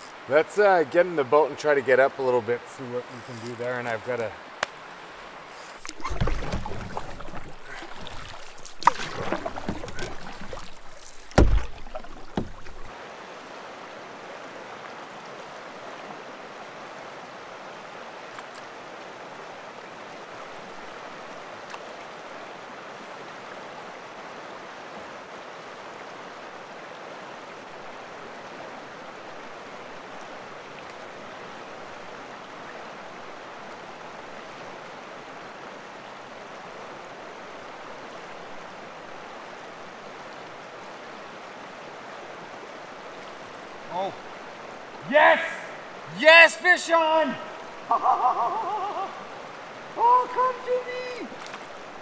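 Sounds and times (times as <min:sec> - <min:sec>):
flowing creek water: 0:00.0 - 0:52.0
knocks against canoe hull: 0:05.8 - 0:12.9.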